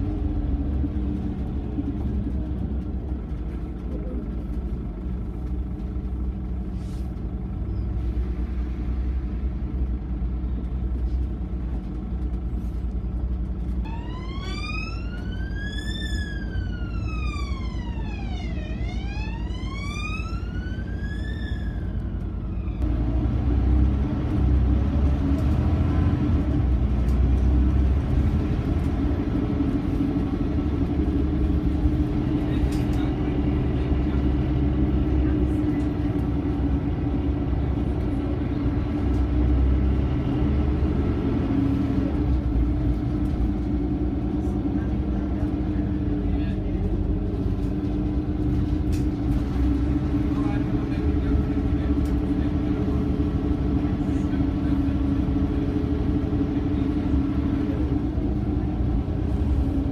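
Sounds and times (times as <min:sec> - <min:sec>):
bus engine rumbling: 0:00.0 - 0:59.9
emergency siren wailing: 0:13.8 - 0:22.9.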